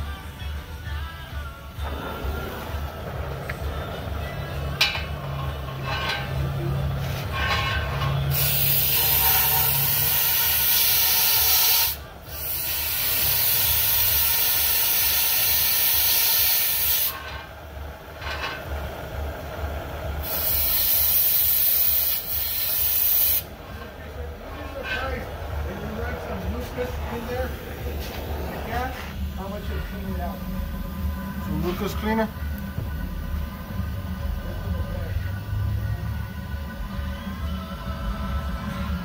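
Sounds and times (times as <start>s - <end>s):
torch flame hissing: 1.8s - 36.7s.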